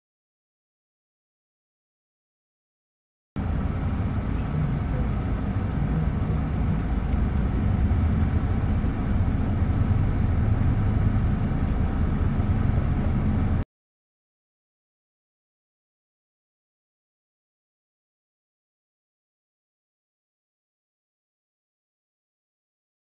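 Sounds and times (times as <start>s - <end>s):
vehicle engine and road rumble: 3.4s - 13.6s.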